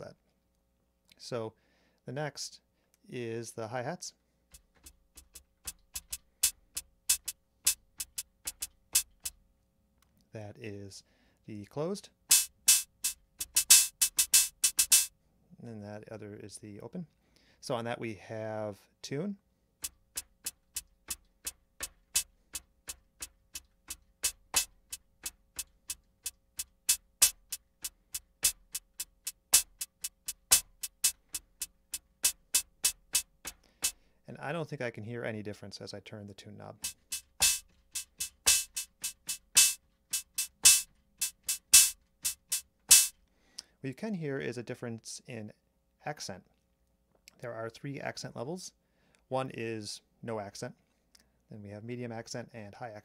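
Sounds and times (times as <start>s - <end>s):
drum machine hi-hat ticks: 4.5s - 9.4s, 12.3s - 15.1s, 19.8s - 34.0s, 36.7s - 43.3s.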